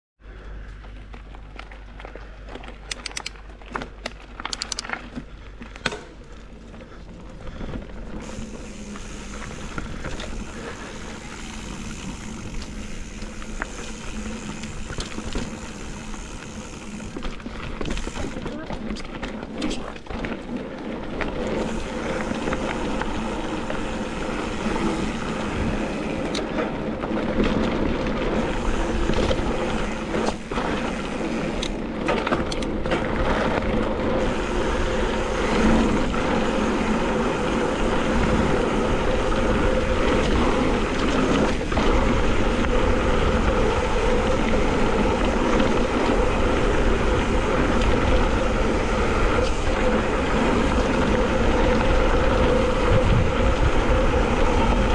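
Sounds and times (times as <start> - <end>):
bike tyres rolling over dirt: 0.2 - 54.9
wind buffeting microphone: 37.7 - 54.9.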